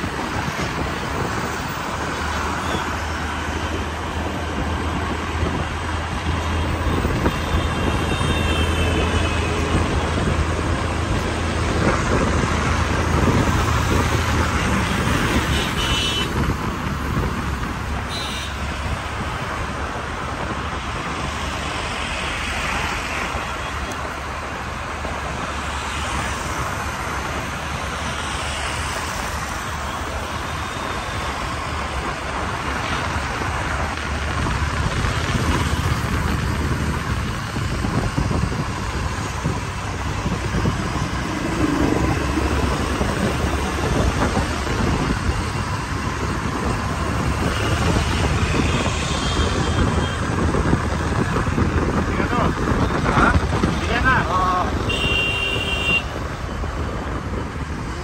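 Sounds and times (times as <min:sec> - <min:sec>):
road traffic rush: 0:00.0 - 0:58.0
horn toots: 0:54.8 - 0:56.1.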